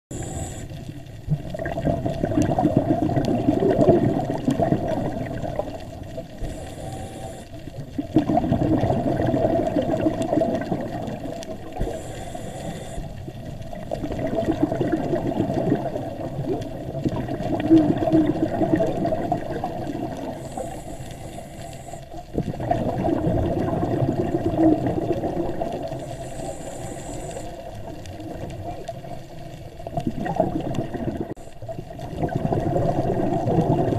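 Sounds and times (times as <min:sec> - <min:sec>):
regulator inhale hisses: 0:00.1 - 0:01.0, 0:06.3 - 0:07.8, 0:11.7 - 0:13.4, 0:20.2 - 0:22.2, 0:25.9 - 0:27.8
gurgling exhaled bubbles: 0:00.1 - 0:33.9.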